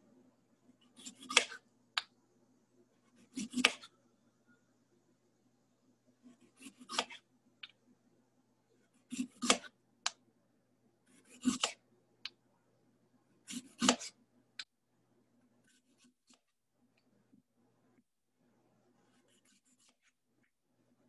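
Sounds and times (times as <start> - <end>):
knife slicing radish on board: 1.0 - 1.6, 3.3 - 3.9, 6.6 - 7.2, 9.1 - 9.8, 11.2 - 11.8, 13.5 - 14.2.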